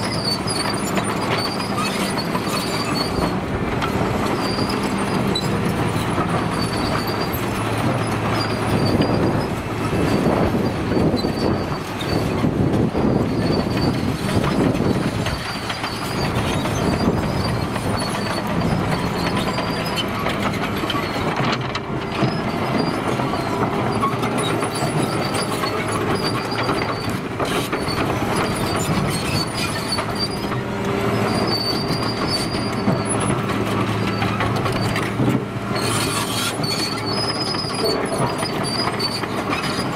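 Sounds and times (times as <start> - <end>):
high track squeal: 0.0 - 33.4, 35.8 - 39.9
diesel engine running: 0.0 - 39.9
steel tracks clanking: 0.0 - 39.9.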